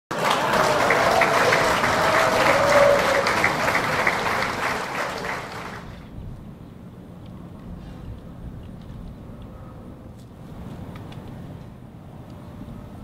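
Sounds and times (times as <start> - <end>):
crowd applause: 0.1 - 6.1.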